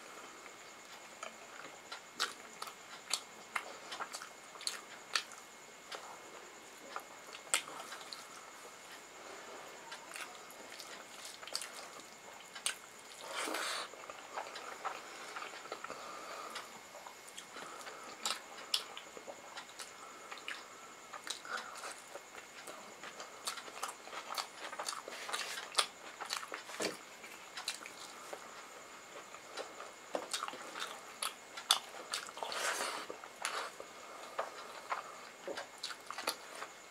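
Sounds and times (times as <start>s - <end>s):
chewing and wet mouth clicks: 12.4s - 13.2s.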